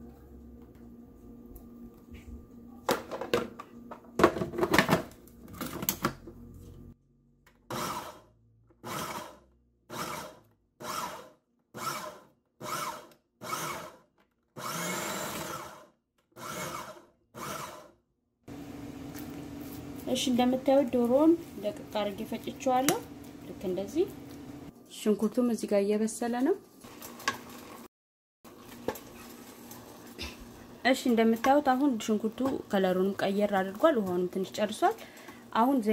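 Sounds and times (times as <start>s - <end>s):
food chopper grinding: 7.6s - 18.0s.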